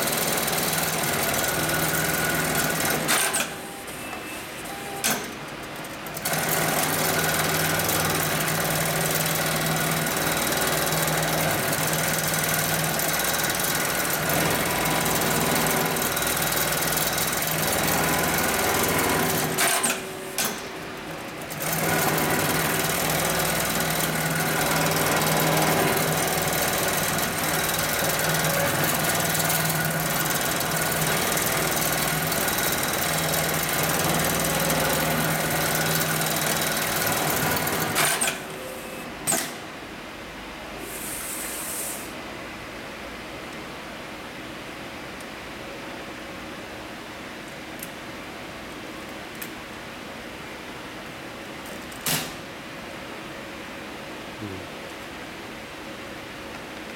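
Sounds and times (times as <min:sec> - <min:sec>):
sewing machine running: 0:00.0 - 0:03.6, 0:05.8 - 0:20.6, 0:21.4 - 0:38.5.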